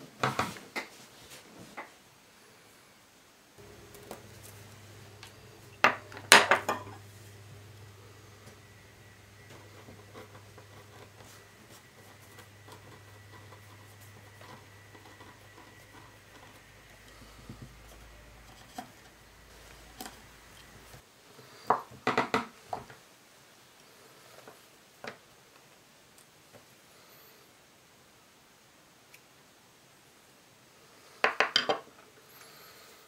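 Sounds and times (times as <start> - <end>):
low steady hum: 3.6 - 21.1.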